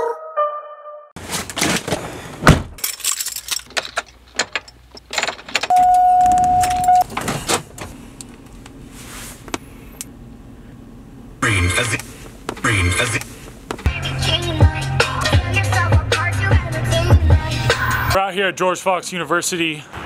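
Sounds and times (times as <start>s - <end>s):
heavy door thud: 1.9s - 2.8s
keys jangling: 2.8s - 5.8s.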